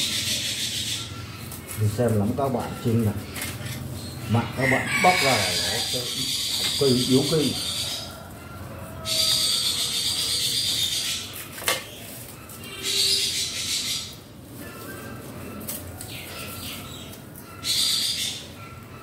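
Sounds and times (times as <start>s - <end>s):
dry leaves rustling and tearing: 11.2s - 13.2s, 14.5s - 17.4s.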